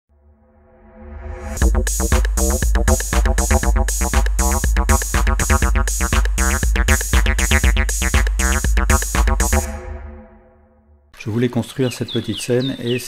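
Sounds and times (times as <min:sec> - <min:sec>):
electronic music with drum machine: 0:01.6 - 0:10.1.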